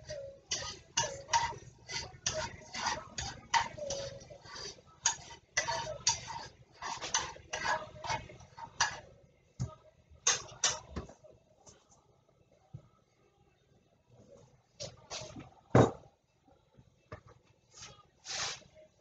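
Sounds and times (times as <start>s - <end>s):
spoon scraping a frying pan: 0.0s - 9.1s.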